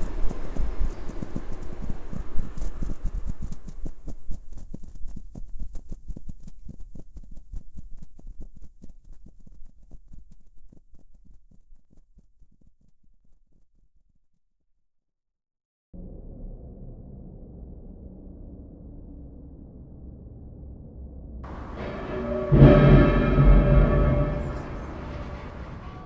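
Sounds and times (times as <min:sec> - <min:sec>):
butterfly wings fluttering: 0:00.0 - 0:13.5.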